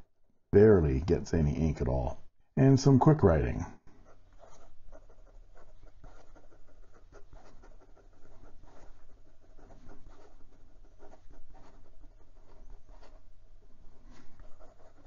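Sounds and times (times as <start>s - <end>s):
fountain pen scratching on paper: 3.9s - 15.0s.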